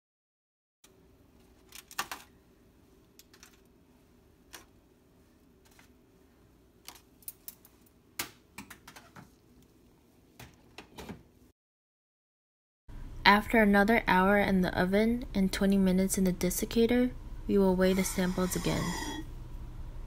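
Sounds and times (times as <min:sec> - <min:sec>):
faint steady hum: 0:12.9 - 0:20.0.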